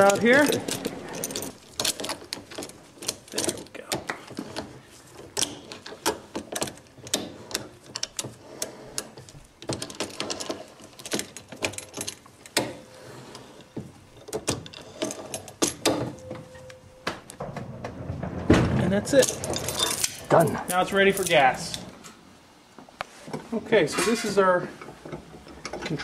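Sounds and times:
metal chain clinking and rattling: 0.0 - 8.4, 9.0 - 16.7, 19.0 - 21.9.

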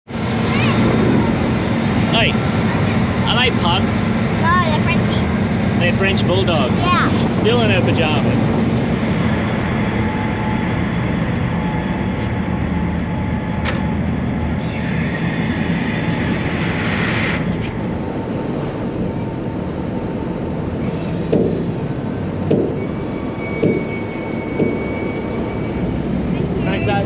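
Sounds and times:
faint steady whine: 0.1 - 27.0
barge engine rumble: 21.6 - 27.0.

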